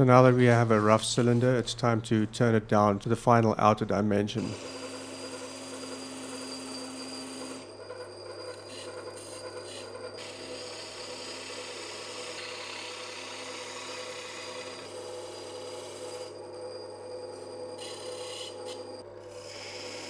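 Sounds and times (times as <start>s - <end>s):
wood lathe humming: 4.4s - 16.6s, 17.4s - 20.0s.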